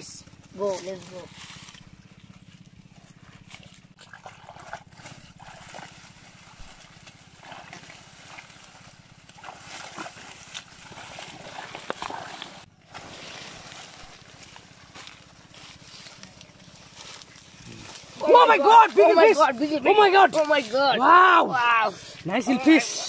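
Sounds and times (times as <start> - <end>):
muddy water sloshing: 0.2 - 23.0
plant stems rustling: 5.0 - 21.5.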